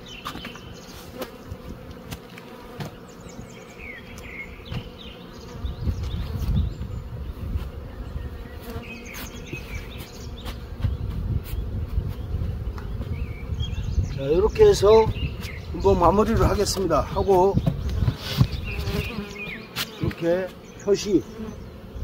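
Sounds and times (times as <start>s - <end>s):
honeybees buzzing: 0.0s - 22.0s
soft knocks of hive cover: 0.2s - 3.6s, 4.6s - 5.0s
wind rumbling on microphone: 0.8s - 2.0s, 4.2s - 19.2s.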